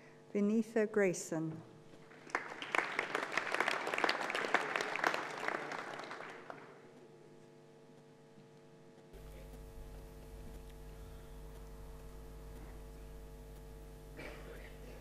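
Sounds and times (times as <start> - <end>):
audience applause: 2.1 - 6.9.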